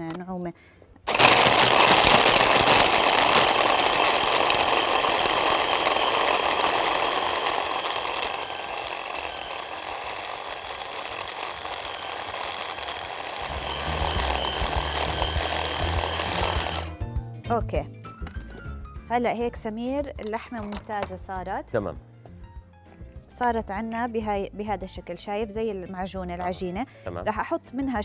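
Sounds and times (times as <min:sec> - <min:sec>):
ice cubes clattering: 0:01.1 - 0:16.9
hand blender motor whining: 0:01.1 - 0:17.0.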